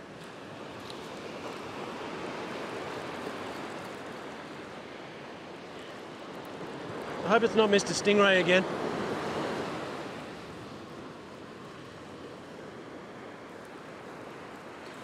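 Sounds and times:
surf breaking on beach: 6.7s - 11.2s.

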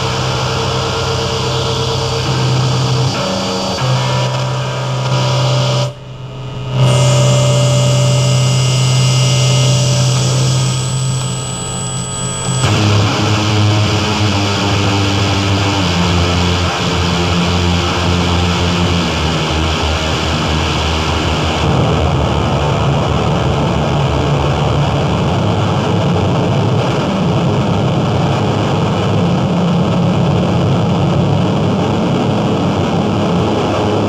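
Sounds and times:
low drone: 0.0s - 24.4s
harsh noise wall: 0.0s - 34.0s.

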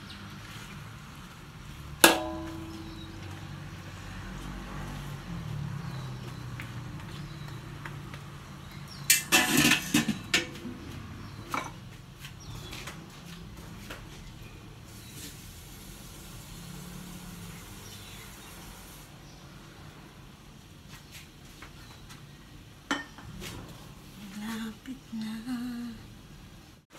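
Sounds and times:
metal lid clattering on wok: 2.0s - 3.4s, 9.1s - 10.6s
metal spatula striking wok: 2.0s - 3.6s.

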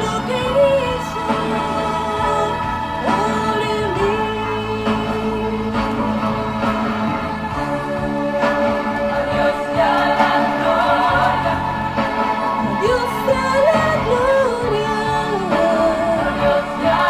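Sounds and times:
woman singing into a microphone: 0.0s - 6.2s, 12.6s - 17.0s
christian song with instruments: 0.0s - 17.0s.

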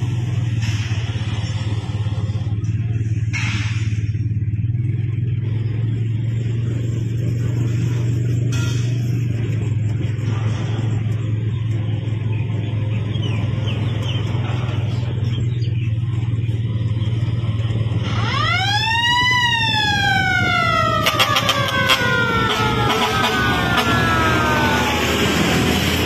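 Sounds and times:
low engine drone: 0.0s - 26.0s
siren-style truck horn: 7.2s - 10.6s, 18.0s - 26.0s.

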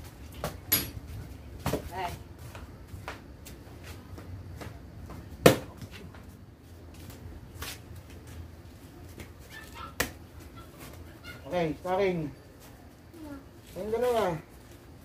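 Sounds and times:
kicks smacking kick paddles: 5.4s - 5.9s.

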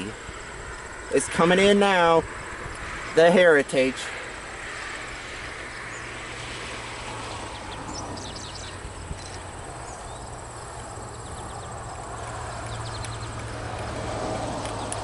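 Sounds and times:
insect trilling: 4.1s - 14.8s.

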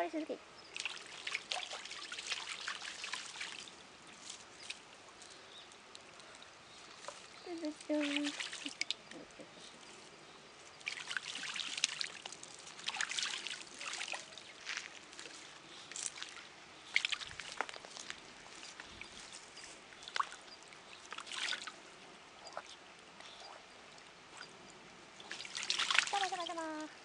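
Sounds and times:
duck splashing water: 0.7s - 9.4s, 10.8s - 19.2s, 20.0s - 21.8s, 25.2s - 26.8s.

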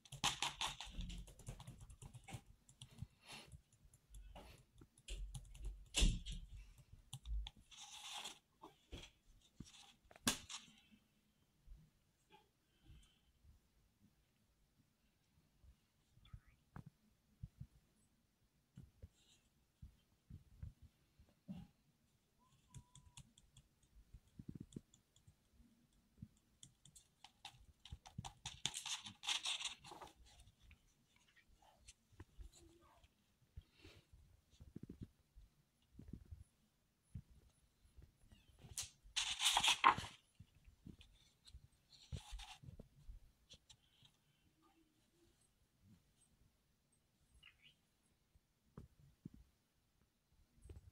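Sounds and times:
paper rustle: 27.3s - 32.0s, 38.6s - 40.3s
paper page rustling: 38.7s - 40.2s.

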